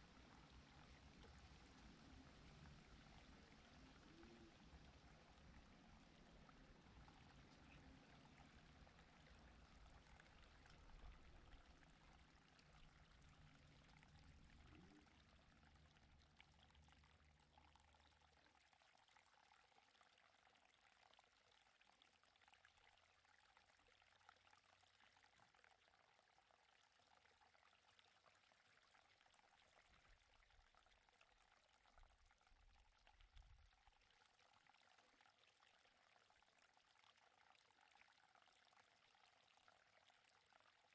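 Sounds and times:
faint steady hiss: 0.0 - 19.9
faint low hum: 0.0 - 21.5.

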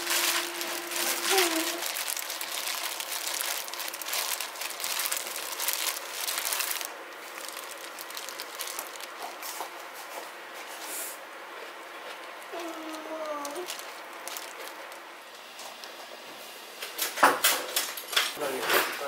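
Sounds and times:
wet squishing of cabbage: 0.0 - 9.7, 11.5 - 15.2
plastic glove crinkling: 0.0 - 10.8, 11.7 - 15.2.

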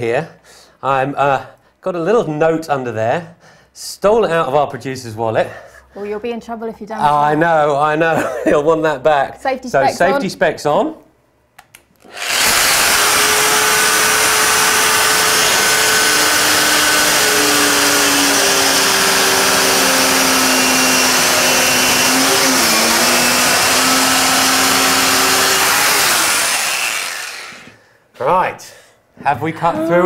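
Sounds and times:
circular saw cutting laminate: 12.0 - 27.8.

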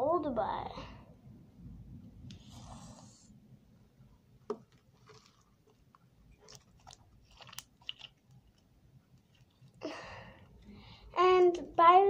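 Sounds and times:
wet slime squishes: 4.5 - 10.8
air bubbles popping in slime: 6.5 - 8.4.

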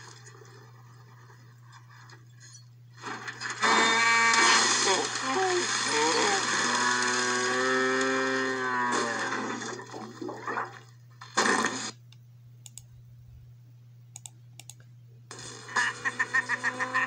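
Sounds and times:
cartoon moo through speakers: 6.0 - 9.5
computer mouse clicks: 12.1 - 12.9, 14.1 - 14.9.

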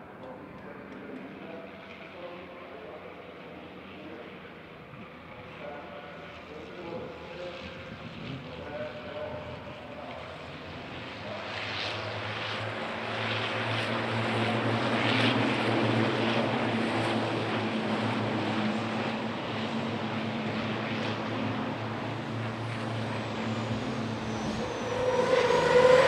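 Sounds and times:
diesel truck engines droning: 9.2 - 26.0.

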